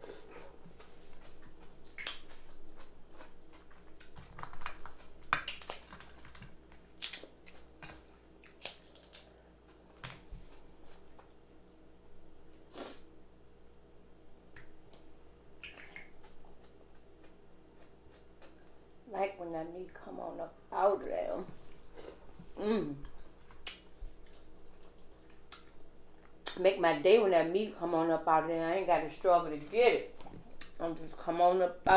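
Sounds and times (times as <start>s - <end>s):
chewing and smacking: 0.2s - 11.3s, 23.2s - 26.6s, 30.0s - 30.8s
crab shell cracking: 3.6s - 9.4s.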